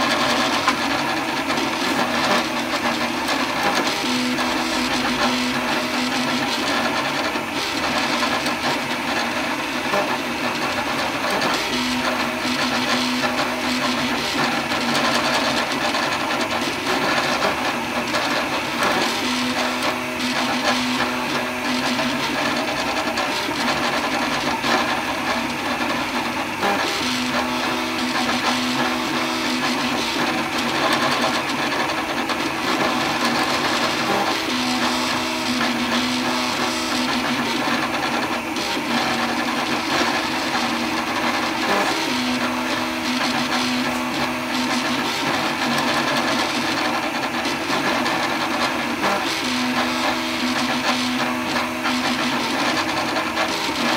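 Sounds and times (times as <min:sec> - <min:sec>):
cooling fan whirring: 0:00.0 - 0:53.9
stepper motors buzzing: 0:00.0 - 0:53.9.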